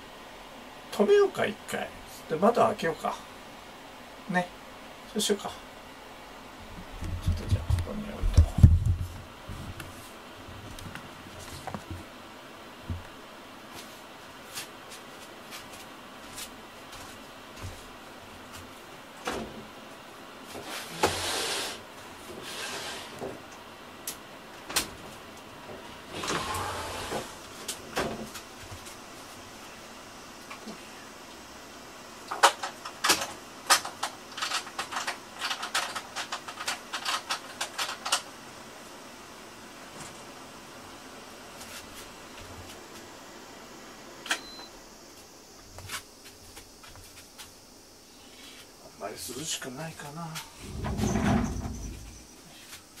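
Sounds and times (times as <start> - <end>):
dehumidifier fan hum: 0.0 - 53.0
sliding window scraping: 20.6 - 23.3, 26.1 - 27.4, 50.6 - 52.2.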